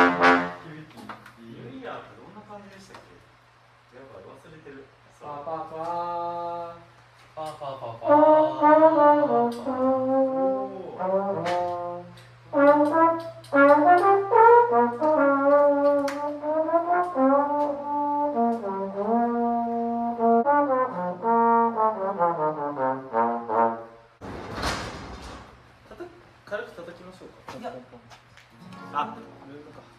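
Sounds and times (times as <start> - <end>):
brass melody with sliding notes: 0.0 - 0.7, 8.0 - 24.2.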